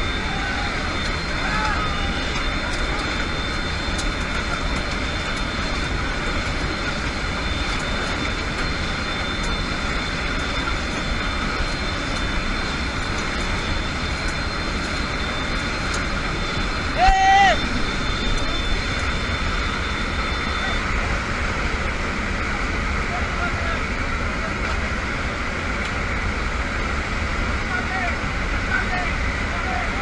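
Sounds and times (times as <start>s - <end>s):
rushing air: 0.0s - 23.1s
aircraft engines droning: 0.0s - 30.0s
faint high whine: 0.0s - 30.0s.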